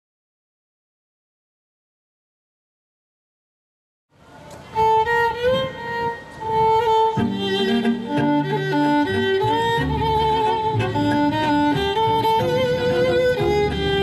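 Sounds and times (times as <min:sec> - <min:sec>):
fiddles playing a melody: 0:04.5 - 0:14.0
bowed double bass: 0:06.9 - 0:14.0.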